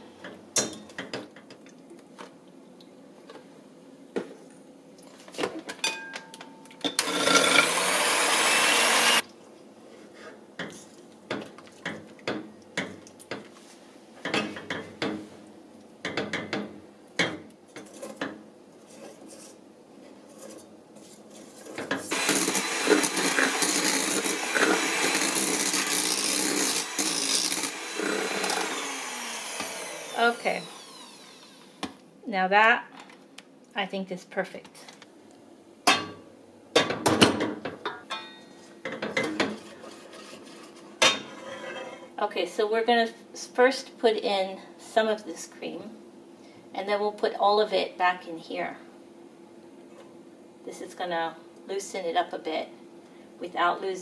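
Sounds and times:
electric hand mixer running: 7.0s - 9.2s, 22.1s - 31.8s
whisk scraping a saucepan: 39.5s - 42.1s.

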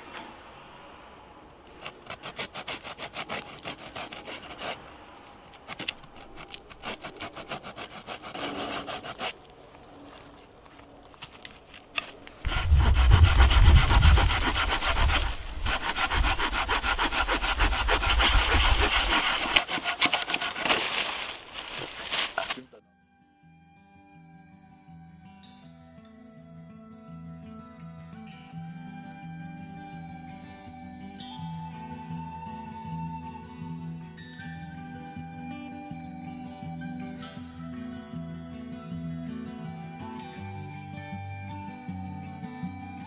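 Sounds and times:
hand saw cutting wood: 1.7s - 4.9s, 5.6s - 9.4s, 12.4s - 22.6s.

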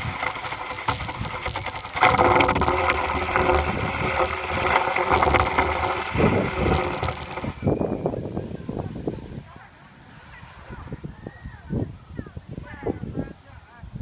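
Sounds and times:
low rumble: 0.0s - 7.6s
microphone scraping against tree bark: 0.0s - 7.7s.

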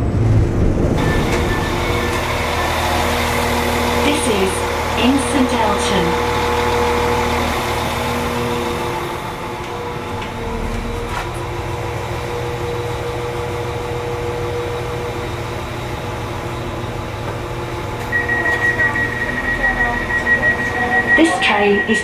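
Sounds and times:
train engine idling: 0.0s - 22.0s.

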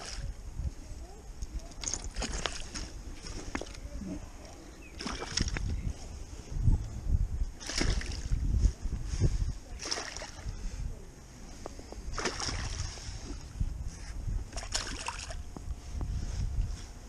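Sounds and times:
wind rumble: 0.0s - 17.0s
fish splashing at water surface: 5.0s - 5.6s, 7.6s - 8.4s, 9.8s - 10.5s, 12.1s - 13.0s, 14.5s - 15.4s
microphone handling noise: 10.4s - 17.0s.

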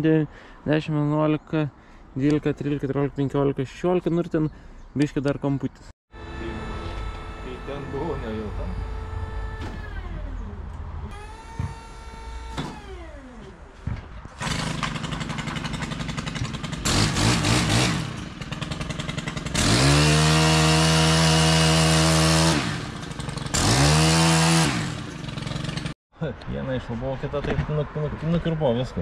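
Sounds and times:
small engine revving: 6.1s - 13.6s, 14.3s - 26.0s.

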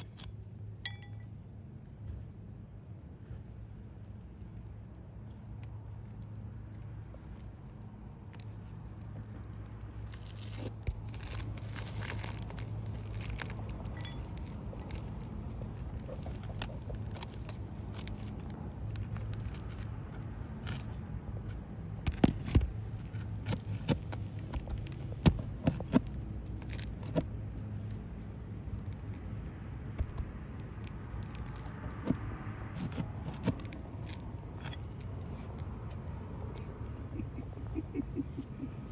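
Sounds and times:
pry bar scraping shingles: 8.2s - 19.8s, 22.1s - 28.1s, 31.2s - 35.6s.

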